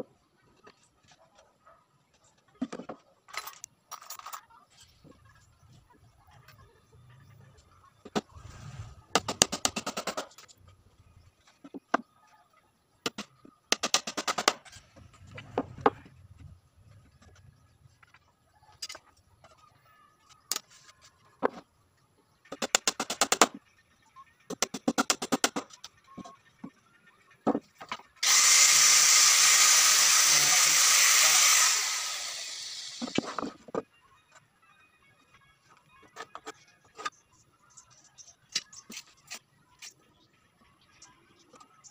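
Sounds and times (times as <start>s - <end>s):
power tool running: 28.2s - 33.4s.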